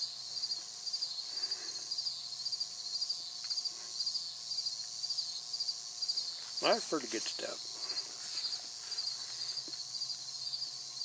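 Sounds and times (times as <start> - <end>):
crickets chirping: 0.0 - 11.0
faint puffs on a tobacco pipe: 7.7 - 10.2.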